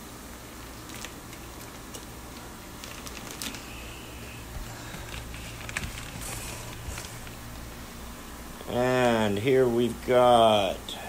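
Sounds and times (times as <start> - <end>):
low steady hum: 0.0 - 11.0
plastic bags crinkling: 0.5 - 9.2.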